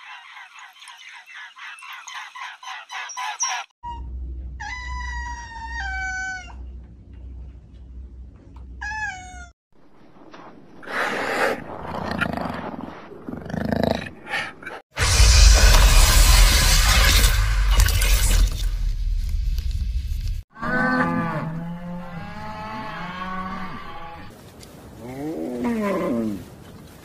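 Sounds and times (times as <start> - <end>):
harsh noisy bursts: 15.0 - 18.9.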